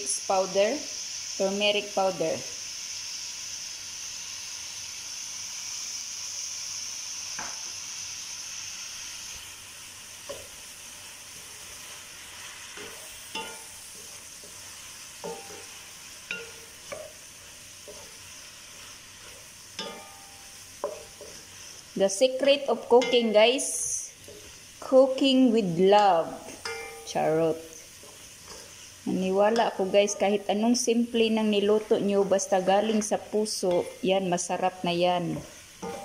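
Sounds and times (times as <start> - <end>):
food sizzling in a frying pan: 0.0 - 36.0
wooden spatula scraping a pan: 11.3 - 25.4, 26.0 - 30.4, 35.3 - 36.0.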